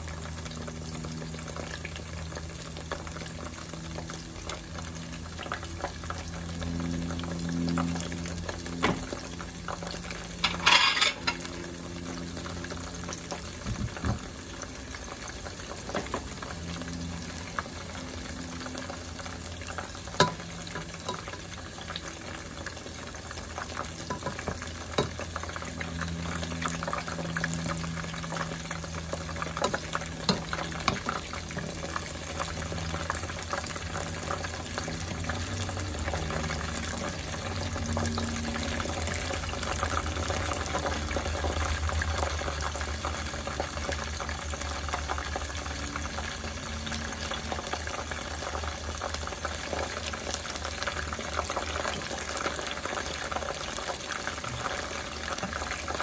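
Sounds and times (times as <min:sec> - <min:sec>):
food deep-frying in oil: 0:00.0 - 0:56.0
low hum: 0:03.9 - 0:14.0
tongs tapping a pot: 0:24.1 - 0:25.2.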